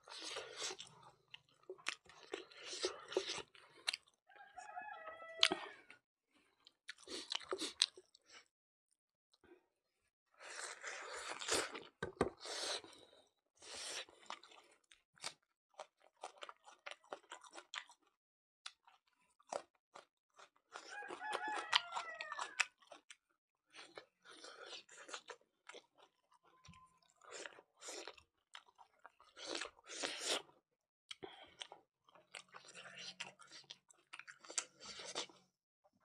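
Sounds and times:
man chewing food: 0.0 - 8.5, 10.4 - 35.6
rooster crowing: 4.3 - 5.8, 20.9 - 22.6.

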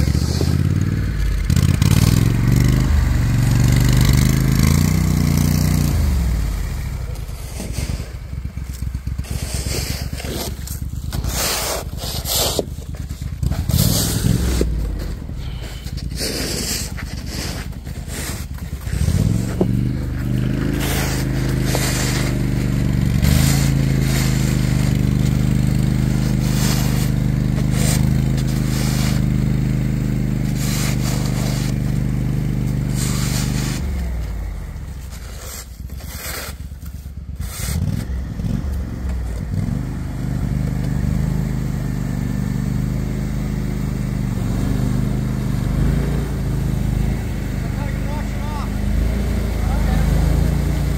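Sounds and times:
atv engine running: 0.0 - 50.9
scraping noises: 6.7 - 38.1.

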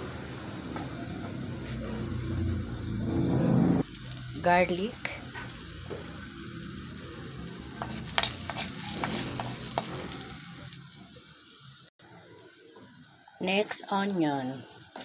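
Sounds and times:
garlic sizzling in hot oil: 3.8 - 11.9, 14.6 - 15.0
stirring and scraping in wok: 7.6 - 10.9.

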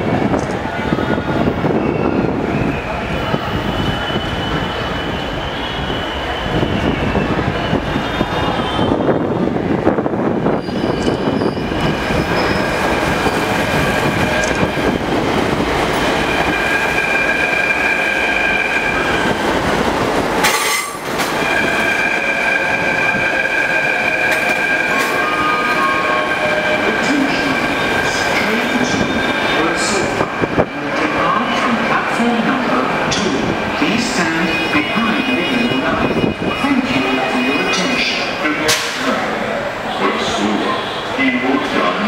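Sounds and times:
train wheels rumbling: 0.0 - 39.7
train wheels squealing: 1.7 - 9.0, 10.5 - 14.8.

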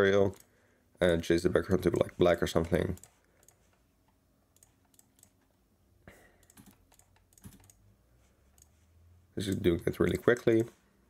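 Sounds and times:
computer mouse and keyboard clicks: 6.4 - 7.8.

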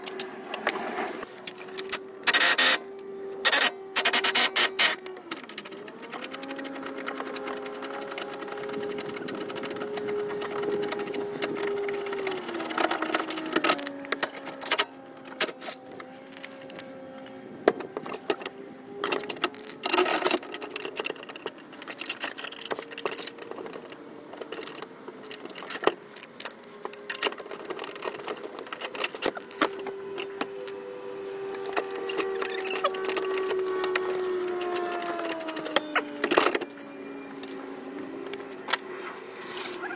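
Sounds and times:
metal clicks and clinks: 3.4 - 17.3, 18.0 - 30.8.

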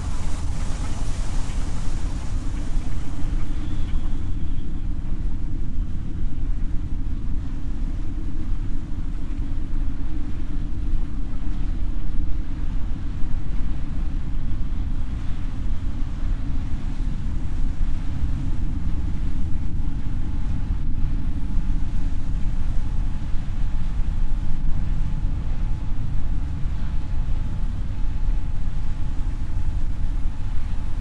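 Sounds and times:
sea surf: 0.0 - 4.5
wind: 0.0 - 31.0.

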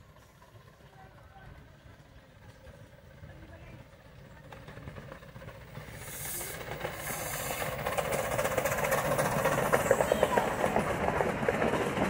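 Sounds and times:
steam locomotive chugging: 0.0 - 12.0
steam hissing: 5.6 - 12.0.

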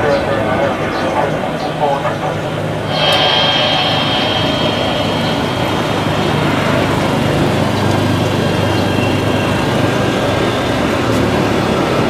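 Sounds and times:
high even engine whine: 0.0 - 11.9
jet engine rush: 0.0 - 11.9.

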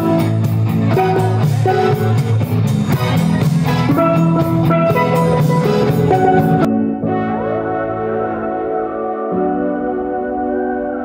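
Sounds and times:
bass and drum backing: 0.0 - 7.0
steel drum melody: 0.0 - 9.0.

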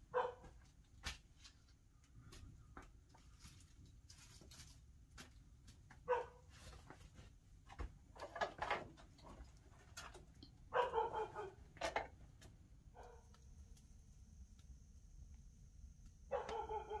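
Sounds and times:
campfire crackling: 6.8 - 17.0.

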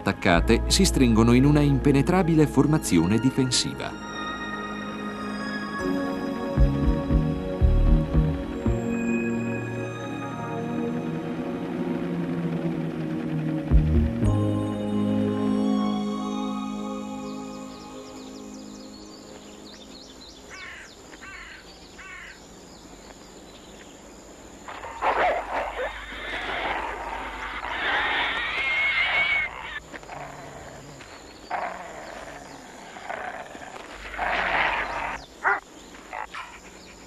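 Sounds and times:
wavering high-pitched whine: 8.2 - 20.5, 24.5 - 30.7
wolves snarling and growling: 24.7 - 37.0.

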